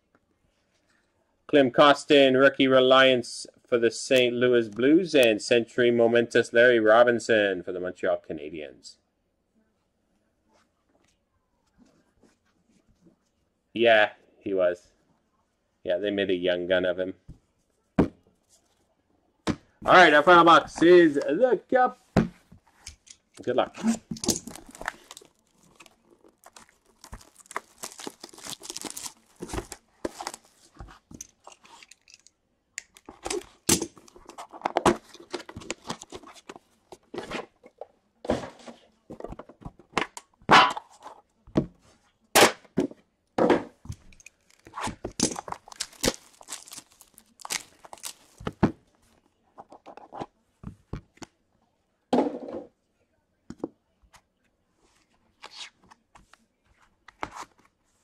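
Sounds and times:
sharp knocks and thuds: 22.1s - 22.5s
plastic wrap and cardboard tearing: 23.9s - 30.7s, 44.4s - 48.5s.

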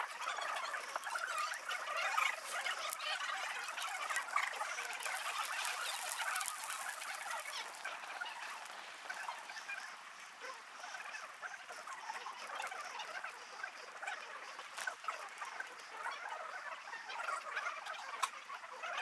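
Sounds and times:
bark torch crackling: 0.7s - 10.0s.

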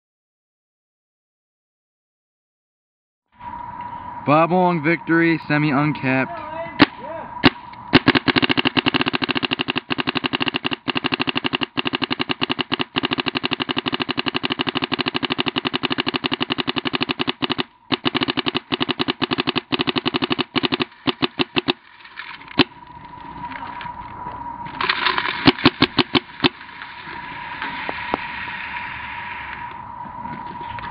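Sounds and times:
paintball marker firing: 6.8s - 21.8s, 25.2s - 26.6s.

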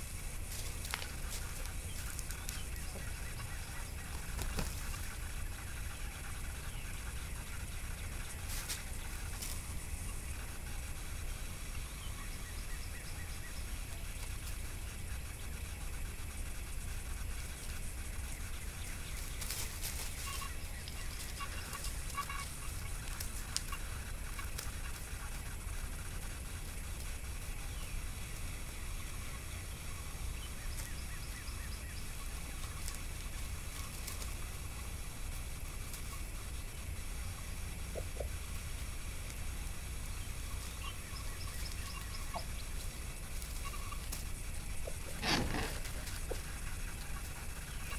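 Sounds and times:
steady low rumble: 0.0s - 47.9s
faint bird chirps: 1.0s - 24.2s, 25.5s - 34.8s, 39.8s - 47.9s
rooster clucking softly: 37.8s - 38.5s
brief rustles: 44.9s - 46.4s.

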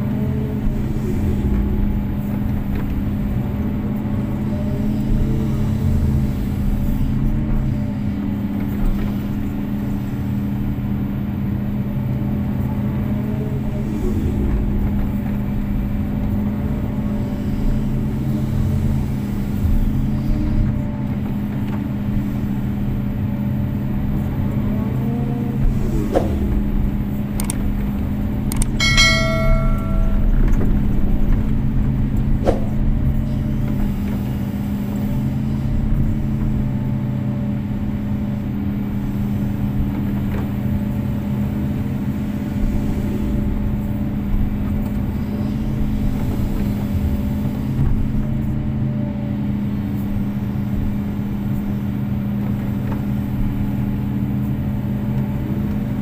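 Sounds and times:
excavator diesel engine running: 0.0s - 56.0s
high metallic ringing: 28.8s - 30.9s.

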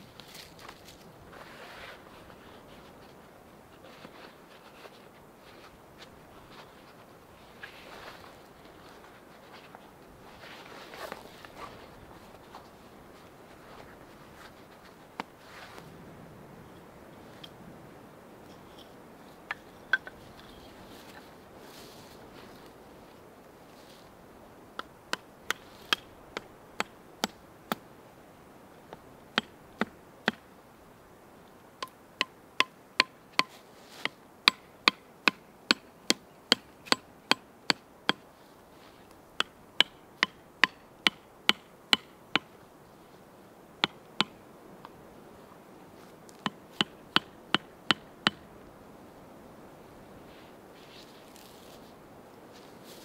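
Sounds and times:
hatchet hammering tent stakes: 24.8s - 27.8s, 29.4s - 30.4s, 31.8s - 38.3s, 39.4s - 42.5s, 43.8s - 44.4s, 46.3s - 48.4s.

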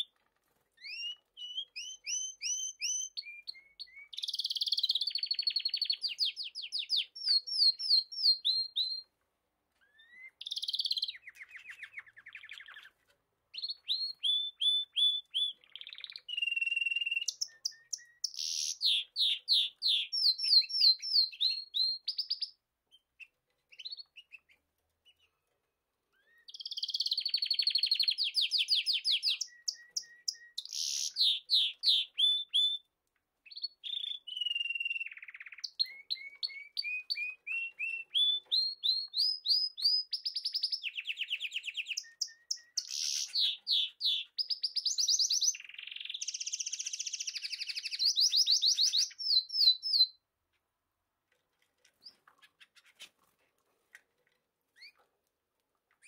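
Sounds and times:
budgerigars chirping and trilling: 10.0s - 13.0s, 39.2s - 49.9s, 52.0s - 53.2s.

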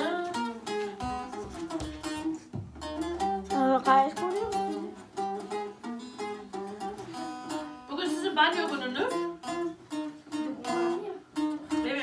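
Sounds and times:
plucked long-necked lute melody: 0.0s - 12.0s.

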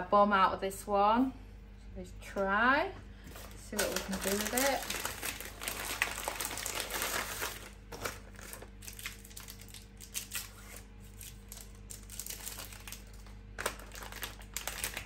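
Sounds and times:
faint steady hum: 0.0s - 15.0s
plastic wrapper crinkling: 3.3s - 15.0s.

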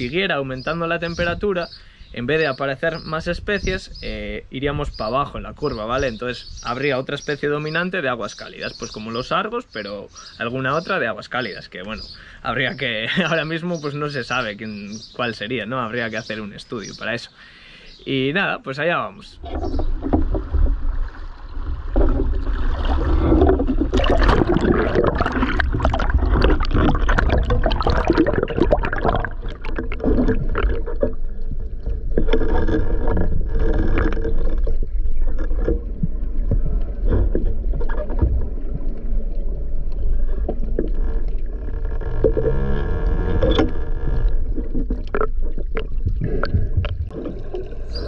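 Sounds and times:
seawater sloshing and splashing: 19.4s - 48.0s
underwater rumble and crackle: 19.4s - 48.0s.

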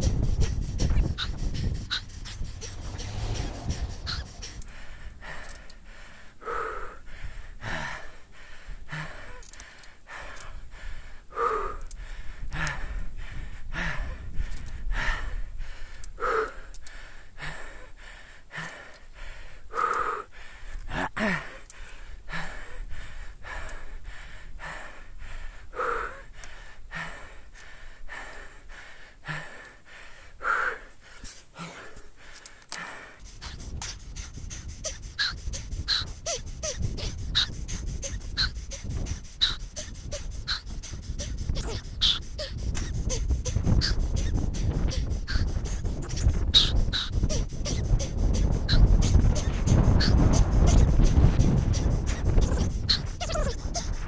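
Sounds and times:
wind rumble on microphone: 0.0s - 8.1s, 10.1s - 16.8s, 33.2s - 54.0s
man breathing hard: 0.0s - 54.0s
voiced gasp: 11.3s - 14.3s, 16.2s - 23.6s, 28.1s - 54.0s.

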